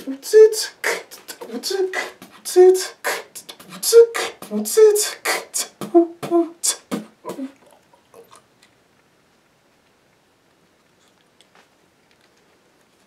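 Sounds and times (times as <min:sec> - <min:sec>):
man beatboxing: 0:00.0 - 0:07.6.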